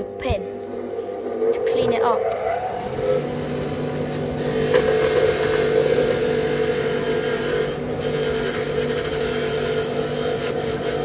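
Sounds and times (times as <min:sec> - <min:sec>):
bench grinder motor humming: 0:00.0 - 0:11.0
wire wheel scrubbing steel: 0:00.8 - 0:11.0.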